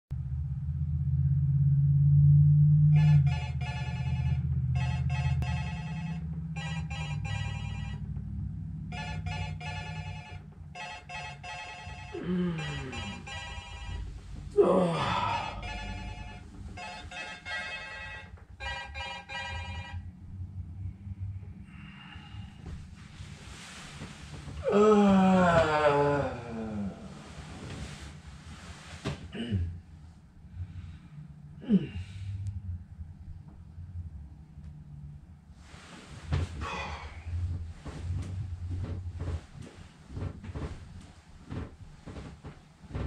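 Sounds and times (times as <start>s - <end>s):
low rumble: 0.1s - 10.7s, 11.7s - 18.8s, 29.7s - 43.0s
smartphone ringtone ringing: 3.0s - 8.1s, 8.9s - 14.1s, 15.5s - 20.1s
person groaning: 12.1s - 13.2s, 14.5s - 15.8s, 24.6s - 27.2s, 31.6s - 32.2s, 36.6s - 37.3s.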